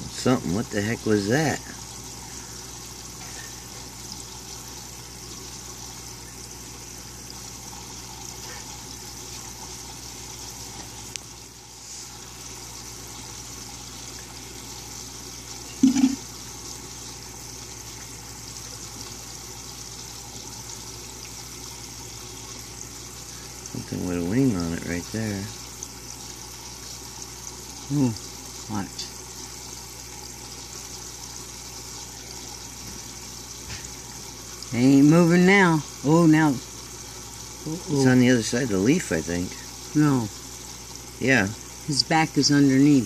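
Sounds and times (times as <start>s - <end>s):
low pump hum: 0.0s - 43.0s
water trickling: 0.0s - 43.0s.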